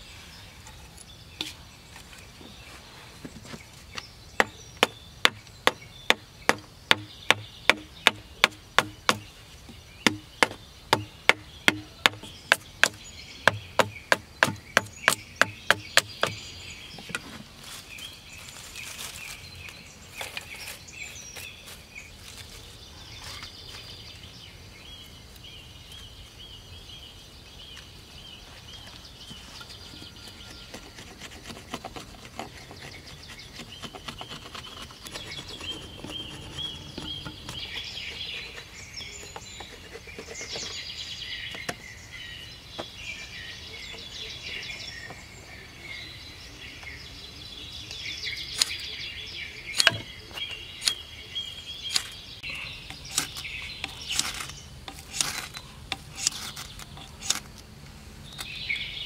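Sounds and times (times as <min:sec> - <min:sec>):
rustling of bamboo shavings: 0:00.0 - 0:24.3, 0:27.8 - 0:41.2, 0:52.9 - 0:58.5
hatchet chopping bamboo: 0:04.4 - 0:09.3, 0:10.0 - 0:16.4, 0:49.7 - 0:50.1, 0:52.9 - 0:57.5.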